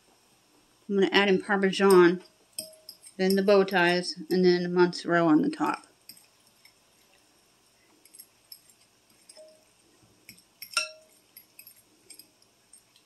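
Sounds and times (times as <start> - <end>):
fork clinking against glass dish: 2.6 - 3.5, 8.0 - 13.0
fork stirring wet mixture: 2.6 - 4.4, 5.6 - 13.0.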